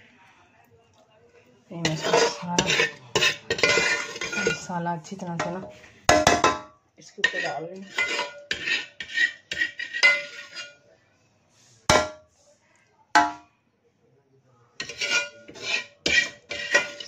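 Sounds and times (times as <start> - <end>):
metal spoon scraping steel pot: 1.8 - 4.8, 7.2 - 10.8, 14.8 - 17.0.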